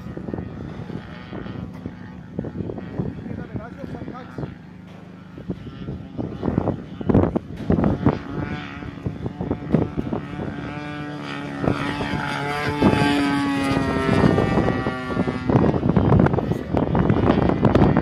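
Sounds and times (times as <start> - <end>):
model plane engine droning: 0.0 - 18.0.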